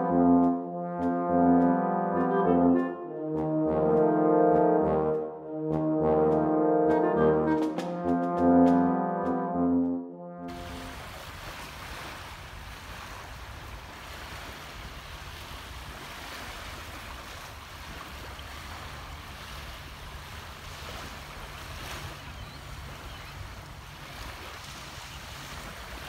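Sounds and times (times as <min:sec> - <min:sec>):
small waves lapping on sand: 0:10.5 - 0:26.0.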